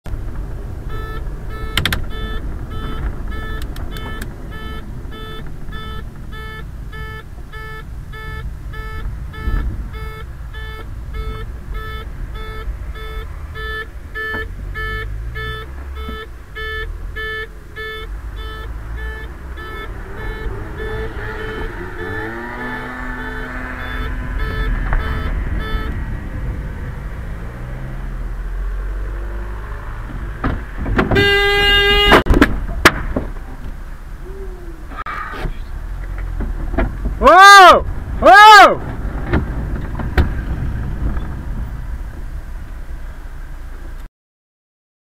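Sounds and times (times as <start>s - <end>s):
road rumble: 0.0s - 44.1s
electronic beeper beeping: 0.9s - 26.0s.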